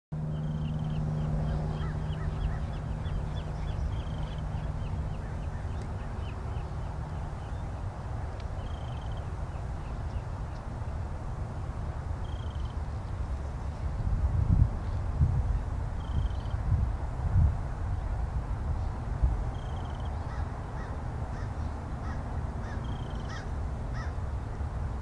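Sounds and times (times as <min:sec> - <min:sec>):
steady low hum: 0:00.2 - 0:25.0
bird calling: 0:00.4 - 0:07.6, 0:19.5 - 0:24.2.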